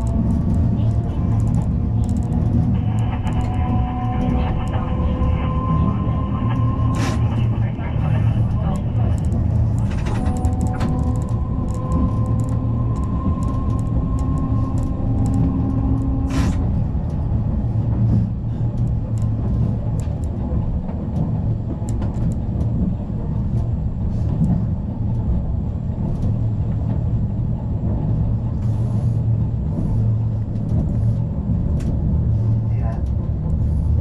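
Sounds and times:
light clicks and rattles: 0.0s - 3.6s, 18.0s - 25.3s
tram rumbling: 0.0s - 34.0s.

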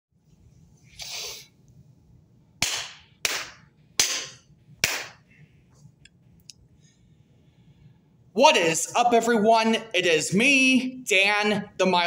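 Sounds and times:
sharp hand claps: 2.6s - 5.2s.

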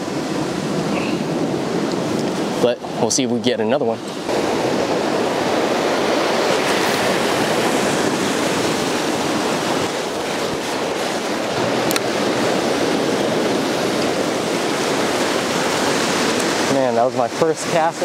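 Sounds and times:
ocean surf on rocky shore: 0.0s - 18.0s.

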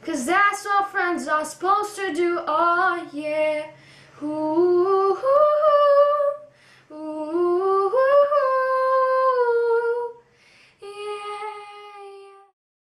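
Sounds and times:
boy singing: 0.0s - 10.2s, 10.8s - 12.5s
quick breath: 3.7s - 4.2s, 6.5s - 6.9s, 10.3s - 10.8s.

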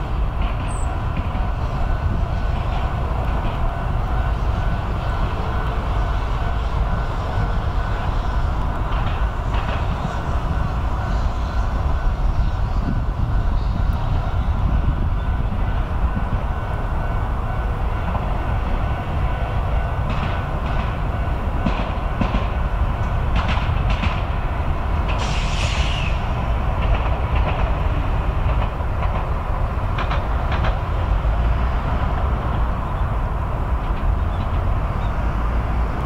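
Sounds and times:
streetcar rumbling on rails: 0.0s - 36.0s
high-pitched hiss or squeal: 25.2s - 26.4s.

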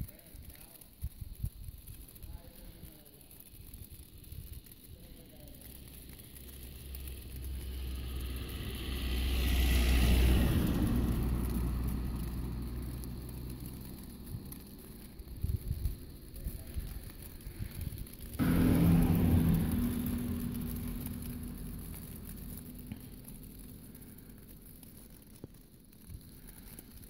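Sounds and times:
tyres hissing on snow: 2.0s - 27.0s
car engine hum: 5.7s - 25.4s.

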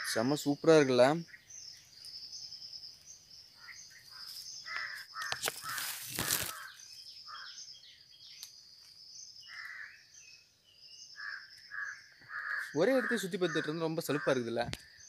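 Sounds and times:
crows cawing: 0.0s - 0.2s, 3.6s - 7.6s, 9.4s - 10.2s, 11.1s - 14.6s
small birds chirping: 0.0s - 15.0s.

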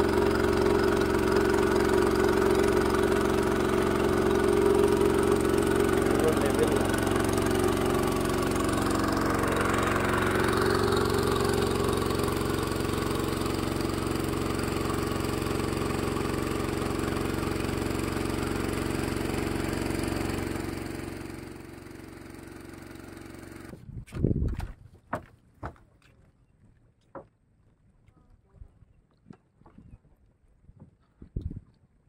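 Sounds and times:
small engine idling: 0.0s - 23.8s.

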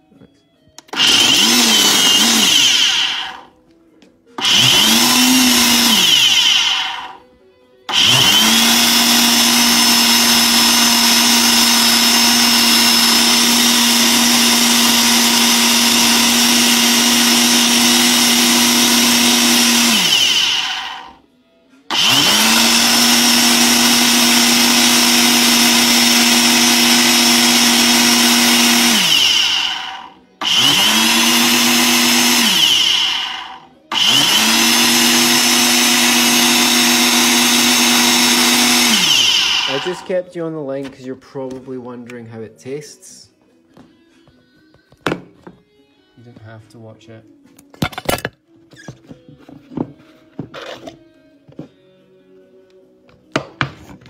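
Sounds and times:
blender motor running: 0.8s - 3.5s, 4.4s - 7.2s, 7.9s - 21.2s, 21.9s - 40.1s.

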